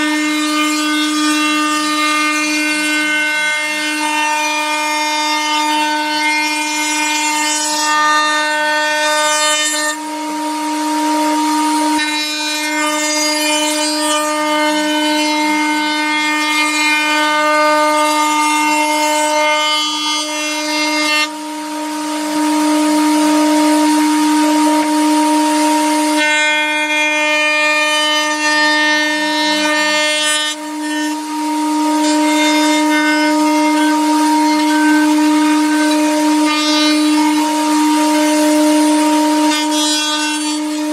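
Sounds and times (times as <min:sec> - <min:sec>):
router bit cutting wood: 0:00.0 - 0:40.9
router whining: 0:00.0 - 0:40.9.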